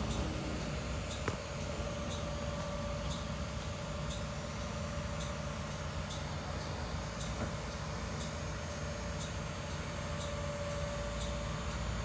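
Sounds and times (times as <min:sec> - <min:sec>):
bus engine idling: 0:00.0 - 0:12.0
faint regular tick: 0:09.2 - 0:10.4.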